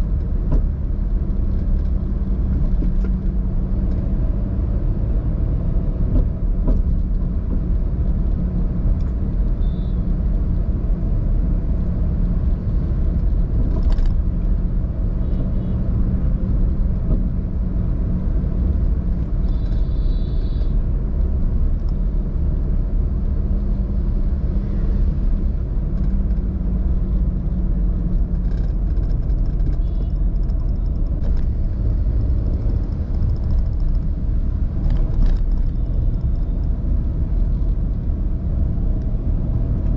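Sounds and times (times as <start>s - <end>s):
car driving on road: 0.0s - 39.9s.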